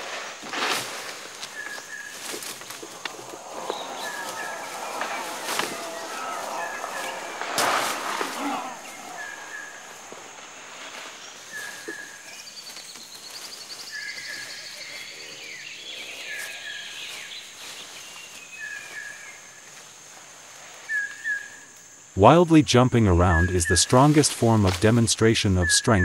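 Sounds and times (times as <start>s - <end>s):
insects droning: 0.0s - 26.0s
lower bird call: 1.4s - 19.4s
bird trill: 2.8s - 10.3s.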